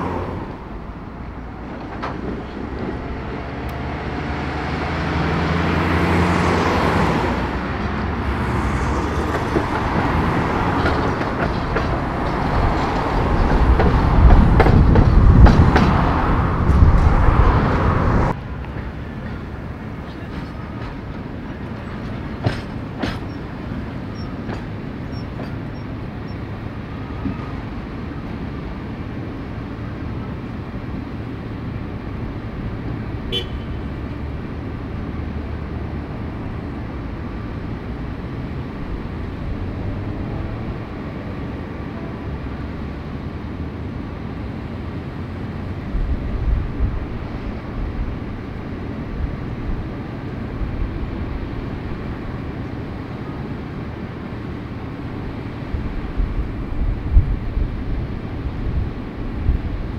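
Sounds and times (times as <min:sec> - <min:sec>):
city street traffic: 0:00.0 - 0:59.9.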